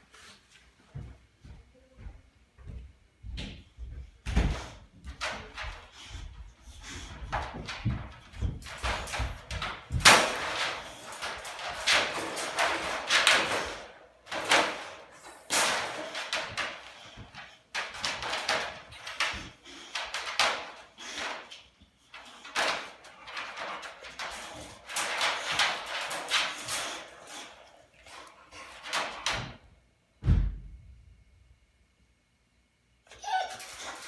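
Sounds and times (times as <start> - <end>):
wire dog crate rattling: 4.5 - 29.6, 33.1 - 34.0.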